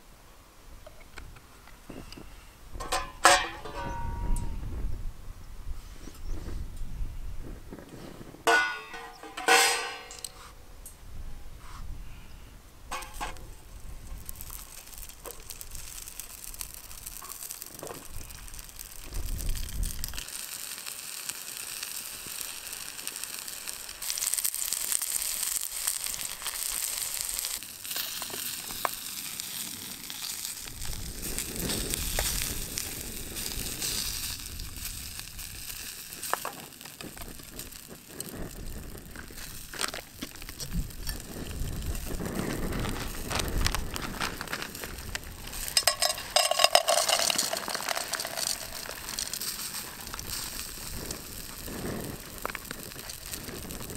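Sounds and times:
vegetables sizzling in a pan: 12.9 - 53.9.

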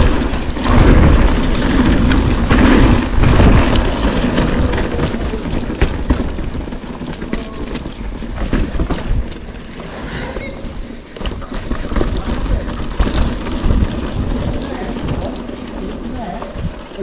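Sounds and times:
bike clicks and knocks over bumps: 0.0 - 17.0
tyres rolling on dirt: 0.0 - 17.0
wind rushing over microphone: 0.0 - 17.0.

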